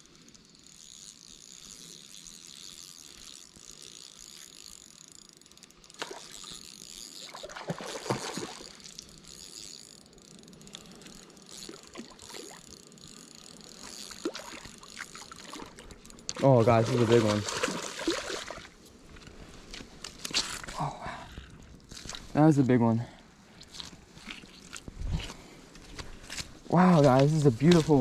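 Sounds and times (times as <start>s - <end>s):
spinning reel cranking: 0.0s - 18.4s, 26.2s - 28.0s
fish splashing: 6.0s - 9.2s, 11.6s - 18.8s.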